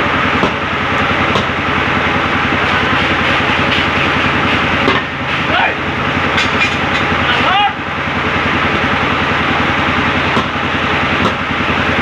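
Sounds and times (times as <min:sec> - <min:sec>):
engine running: 0:00.0 - 0:12.0
sledgehammer strikes: 0:00.4 - 0:00.6, 0:01.3 - 0:01.6, 0:10.3 - 0:10.6, 0:11.2 - 0:11.5.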